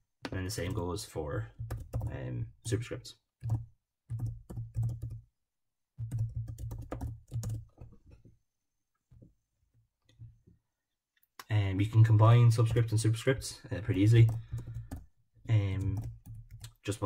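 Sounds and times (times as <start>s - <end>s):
typing on computer keyboard: 1.6s - 2.2s, 3.4s - 5.2s, 6.0s - 8.0s, 14.2s - 16.9s.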